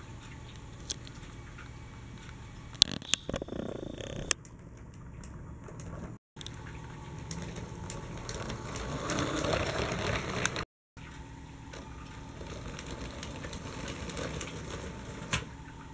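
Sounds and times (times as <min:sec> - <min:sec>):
toy train motor whirr: 0:07.4 - 0:10.7, 0:12.4 - 0:15.3.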